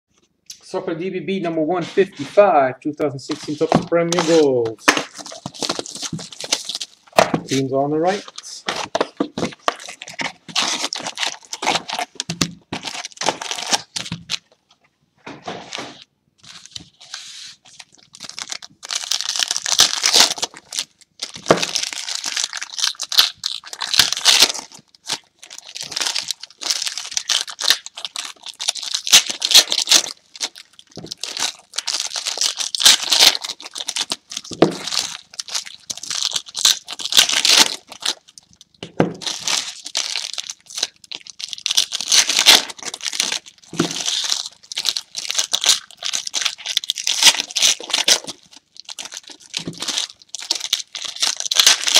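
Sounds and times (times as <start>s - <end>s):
foil wrappers tearing and crinkling: 3.3s - 14.4s, 16.4s - 51.9s.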